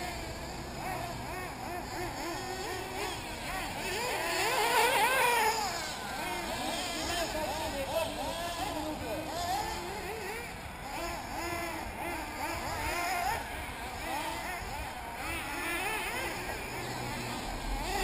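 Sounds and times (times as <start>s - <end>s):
rc car engines whining: 0.0s - 18.0s.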